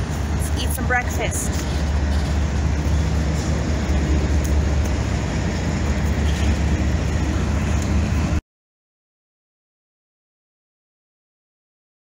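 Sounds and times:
loud low rumbling: 0.0 - 8.4.

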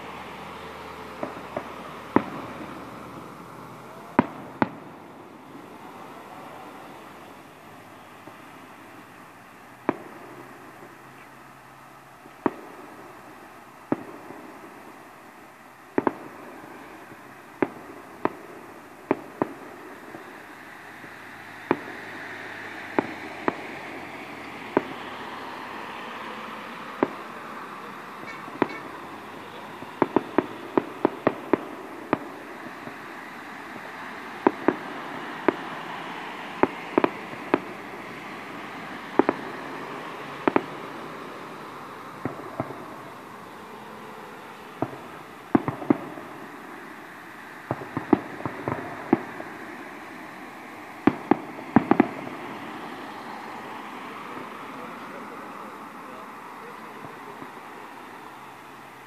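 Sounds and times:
steady background noise: 0.0 - 59.0
fireworks shells bursting: 26.8 - 33.1.

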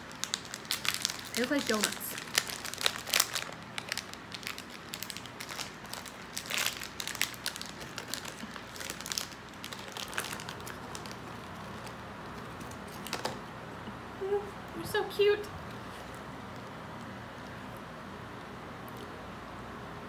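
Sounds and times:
plastic packet crinkling: 0.0 - 13.5.

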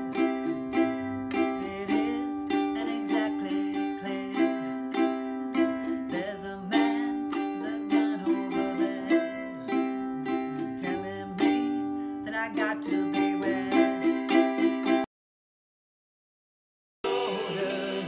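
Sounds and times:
ukulele strumming chords: 0.0 - 15.1
woman singing: 0.9 - 5.0, 5.7 - 9.8, 10.6 - 14.5, 17.1 - 18.0.

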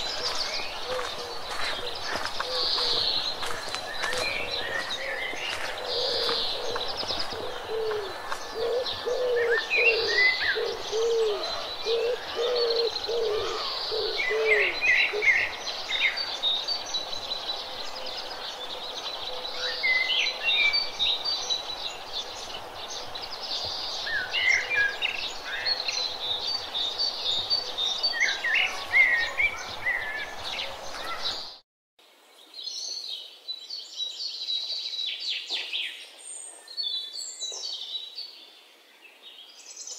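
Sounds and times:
birds chirping and singing: 0.0 - 31.6.

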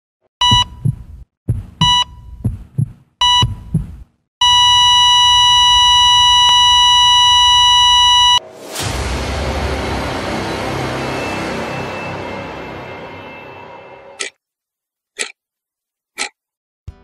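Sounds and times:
low heartbeat thuds: 0.4 - 4.2
heart monitor beeps: 0.4 - 8.4.

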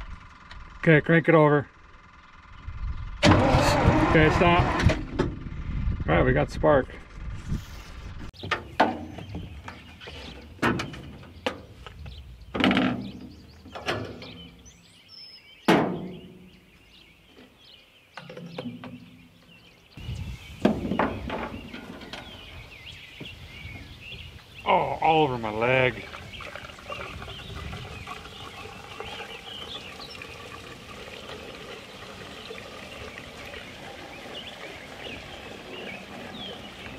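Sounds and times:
thuds and clanks on sheet metal: 15.7 - 16.2.

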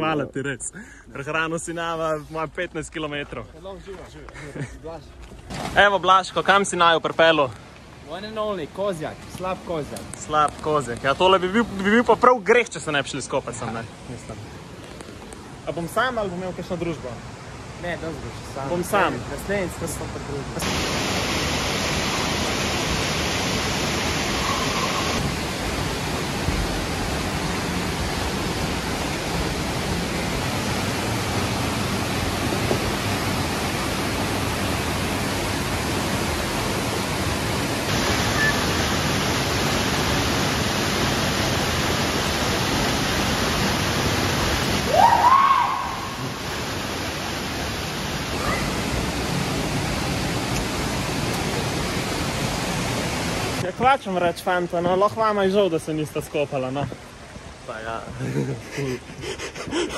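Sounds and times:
waterfall rushing: 5.8 - 59.9
short rising cry: 44.8 - 46.4.

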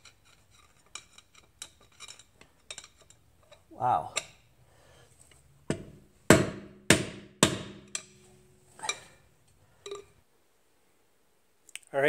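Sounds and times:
hammer striking metal: 5.7 - 9.0.

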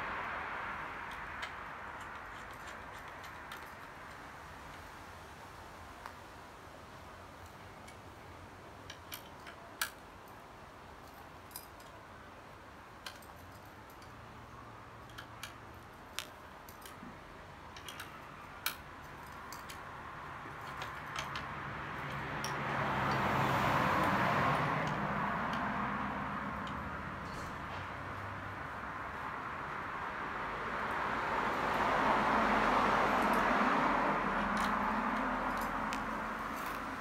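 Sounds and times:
broad rush of noise: 0.0 - 37.0
metallic tool clicks: 17.7 - 19.9, 20.5 - 23.2.

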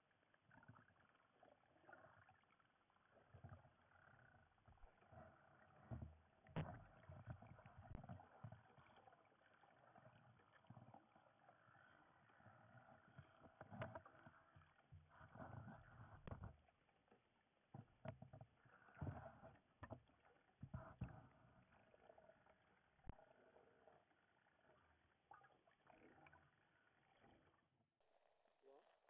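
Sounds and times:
muffled underwater water movement: 0.0 - 29.0
soft knocks and thumps: 13.5 - 16.6, 17.7 - 21.5.

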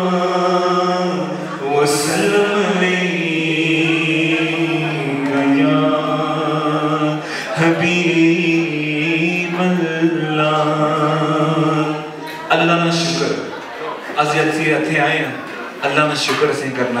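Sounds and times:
man singing unaccompanied: 0.0 - 12.2.

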